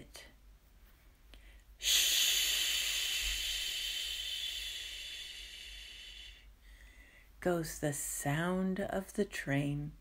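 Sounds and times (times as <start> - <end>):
woman making a long shushing hiss: 1.8 - 6.5.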